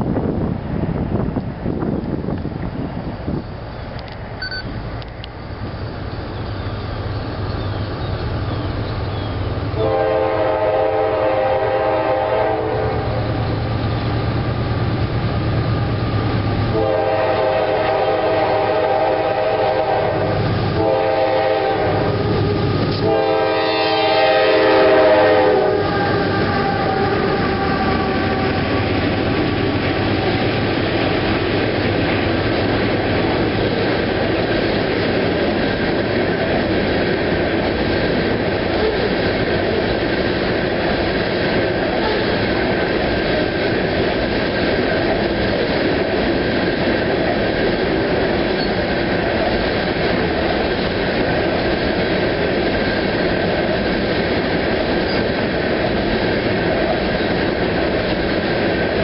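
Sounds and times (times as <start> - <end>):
locomotive engine rumble: 0.0 - 59.0
train horn blasts: 9.8 - 13.2, 16.7 - 29.0
freight cars rumbling and clattering: 25.8 - 59.0.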